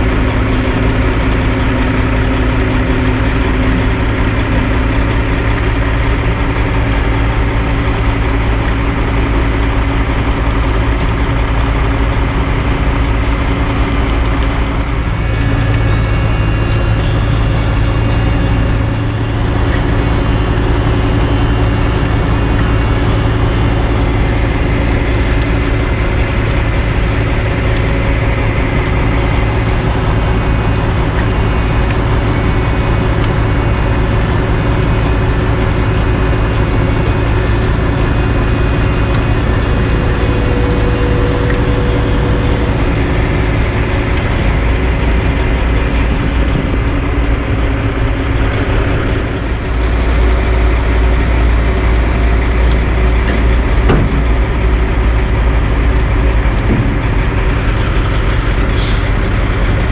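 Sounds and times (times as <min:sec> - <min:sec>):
heavy diesel engines droning: 0:00.0 - 0:59.9.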